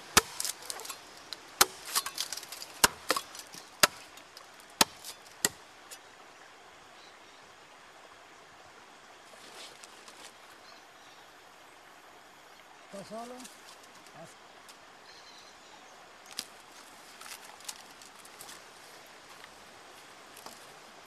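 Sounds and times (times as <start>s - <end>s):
axe chopping wood: 0.1s - 1.0s, 1.6s - 4.2s, 4.8s - 5.6s.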